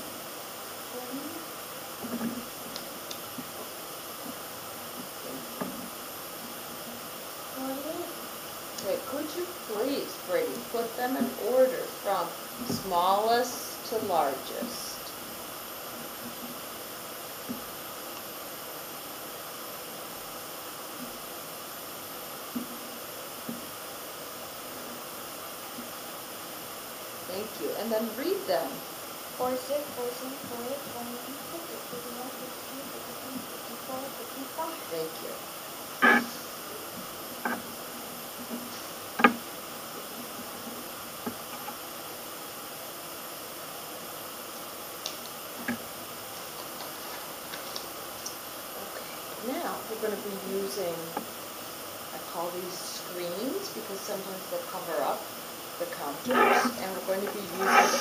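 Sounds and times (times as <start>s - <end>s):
steady hiss: 0.0s - 58.0s.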